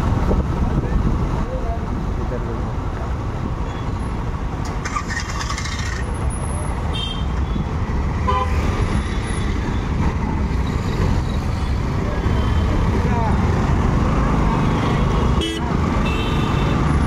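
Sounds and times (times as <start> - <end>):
traffic rumble and road noise: 0.0 - 17.0
vehicle horns: 6.9 - 7.6, 8.2 - 8.6, 14.8 - 17.0.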